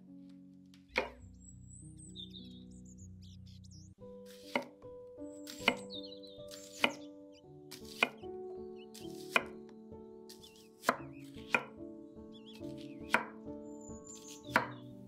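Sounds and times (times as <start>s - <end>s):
soft background music: 0.0s - 15.0s
knife chopping onion on board: 1.0s - 1.2s, 4.3s - 4.7s, 5.5s - 5.9s, 6.5s - 7.1s, 7.7s - 8.2s, 9.0s - 9.6s, 10.3s - 11.7s, 14.2s - 14.8s.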